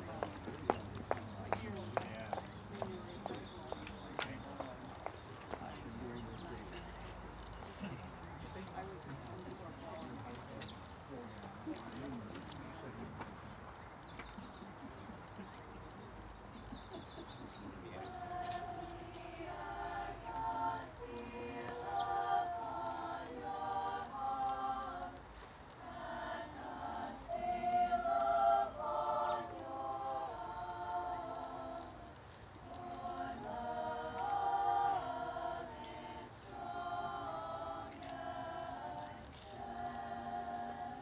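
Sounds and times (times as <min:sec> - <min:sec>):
women's choir singing a cappella: 0:17.6 - 0:41.0.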